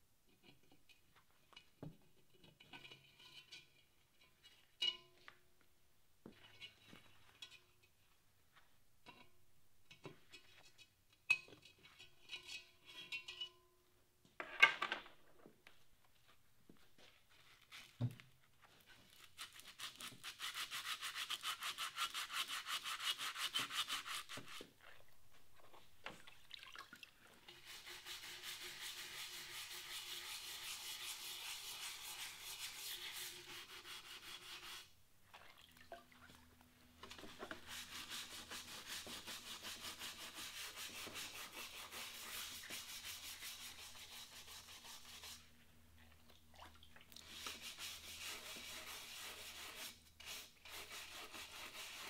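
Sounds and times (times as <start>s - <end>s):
scrub brush scouring a pot: 19.1s - 24.6s, 27.4s - 35.0s, 37.2s - 45.5s, 47.2s - 52.0s.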